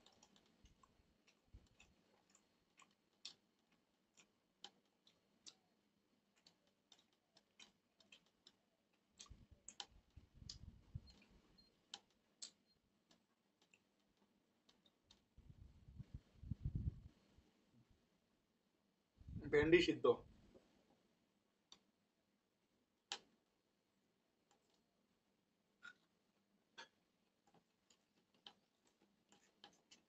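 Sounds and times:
fingers mixing rice on steel plate: 0:00.0 - 0:15.4, 0:25.8 - 0:30.0.

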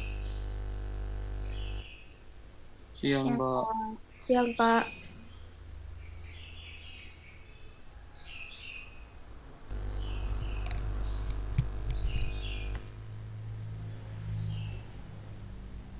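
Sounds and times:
low hum: 0:00.0 - 0:02.0, 0:09.7 - 0:14.5
small bird chirping: 0:01.3 - 0:02.2, 0:09.7 - 0:12.9
sharp clicks: 0:09.7 - 0:13.0.

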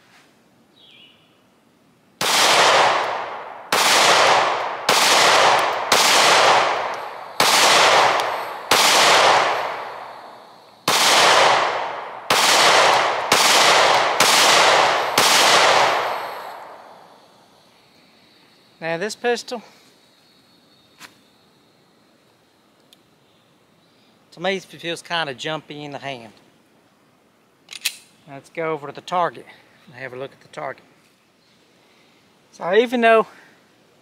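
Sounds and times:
pistol shots with echo: 0:02.2 - 0:17.0.

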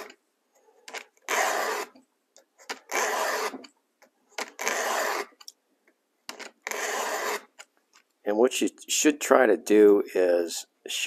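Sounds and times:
file rasping on metal: 0:01.3 - 0:02.0, 0:02.9 - 0:03.6, 0:04.6 - 0:05.4, 0:06.7 - 0:07.5.

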